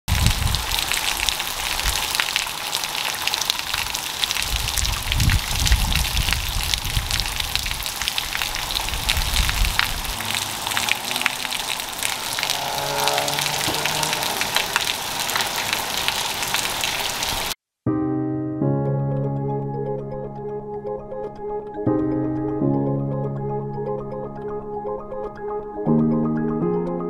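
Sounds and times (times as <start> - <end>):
wind rumbling on microphone: 0.1 - 2.5, 3.5 - 17.6
heavy rain on pavement: 0.1 - 17.6.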